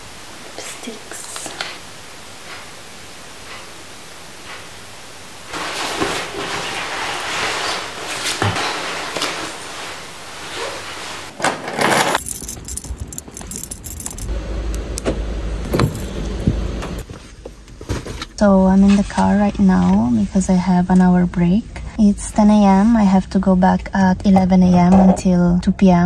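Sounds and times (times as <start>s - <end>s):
clothes and bag rustling: 5.5s - 14.3s
keys jangling: 11.8s - 14.3s, 15.8s - 16.1s.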